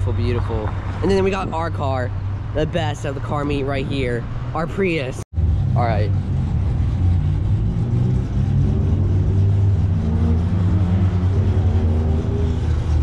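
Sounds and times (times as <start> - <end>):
steady low traffic engine: 0.0 - 13.0
vehicle engine speeding up: 3.5 - 13.0.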